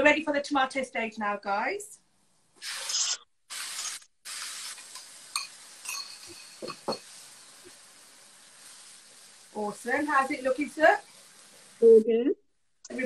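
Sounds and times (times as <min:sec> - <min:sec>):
tomatoes sizzling in a frying pan: 0:02.6 - 0:13.0
spoon clinking against pan: 0:04.9 - 0:07.1.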